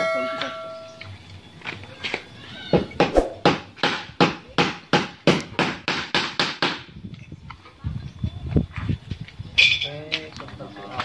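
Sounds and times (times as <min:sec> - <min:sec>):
sharp knocks: 0:03.0 - 0:06.8.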